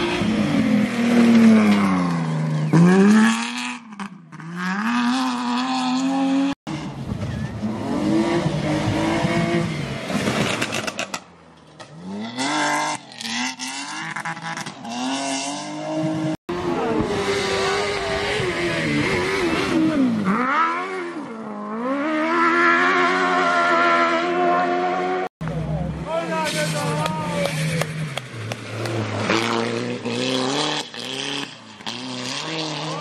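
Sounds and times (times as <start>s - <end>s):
rally car engine revving: 0.0s - 11.2s, 11.8s - 33.0s.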